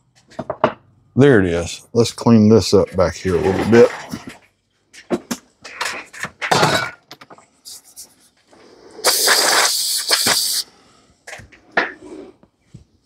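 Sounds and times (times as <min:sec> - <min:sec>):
air blow gun hissing: 0:08.8 - 0:10.8.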